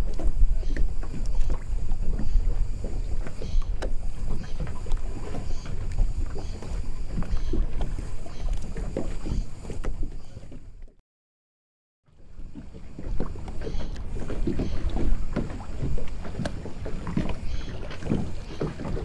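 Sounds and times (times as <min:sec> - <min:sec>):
low wind rumble: 0:00.0 - 0:10.8
water lapping against boats: 0:00.0 - 0:11.0, 0:12.1 - 0:19.0.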